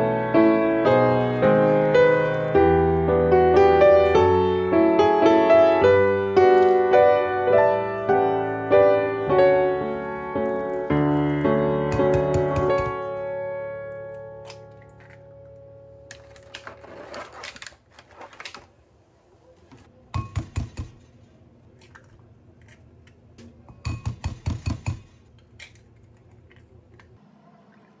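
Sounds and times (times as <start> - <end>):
eggshell crackling: 10.3 - 13.0.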